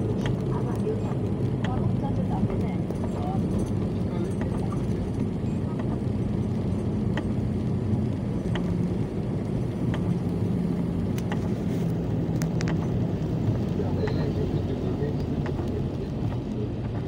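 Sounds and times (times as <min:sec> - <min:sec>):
car engine and tyre drone: 0:00.0 - 0:17.0.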